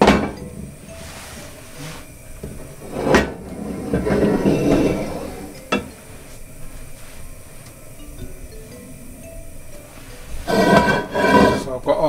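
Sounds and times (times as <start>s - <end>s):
frying pan knocking on metal grate: 0.0s - 0.8s
frying pan scraping: 0.0s - 8.0s, 8.6s - 11.9s.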